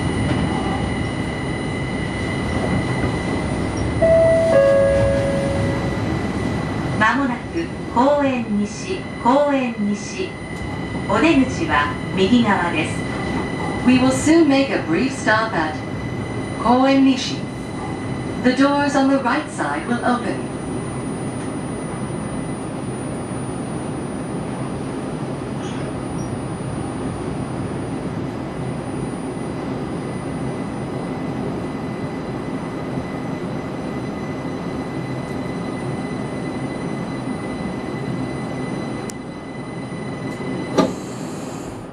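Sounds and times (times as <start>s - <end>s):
train cabin running noise: 0.0s - 41.9s
faint high whine: 3.7s - 7.4s.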